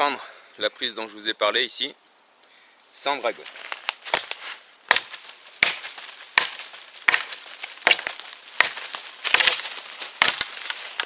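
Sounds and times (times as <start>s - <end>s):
knife chopping dry wood: 4.0s - 11.0s.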